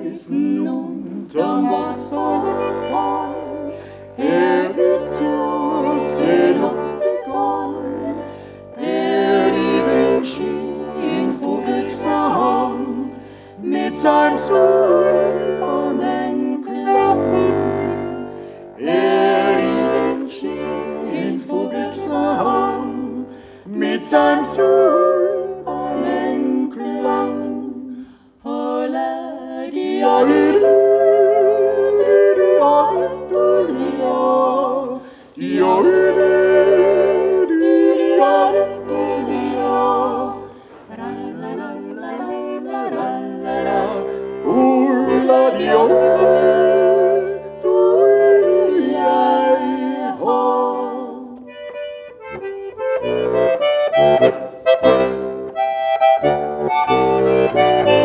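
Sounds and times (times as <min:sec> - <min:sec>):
button accordion: 0:00.0 - 0:28.0, 0:29.8 - 0:58.0
people singing in harmony: 0:00.0 - 0:55.4, 0:56.2 - 0:58.0.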